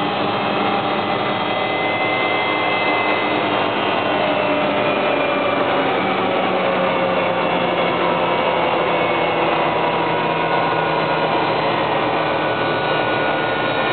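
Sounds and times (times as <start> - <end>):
helicopter engine and rotor: 0.0 - 13.9.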